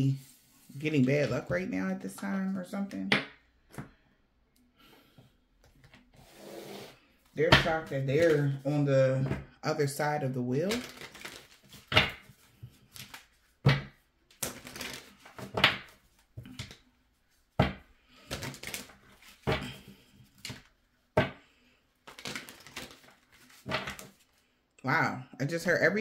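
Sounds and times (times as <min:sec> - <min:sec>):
cards shuffled and slapped down: 0:10.7 - 0:16.8, 0:17.6 - 0:19.8, 0:22.0 - 0:24.2.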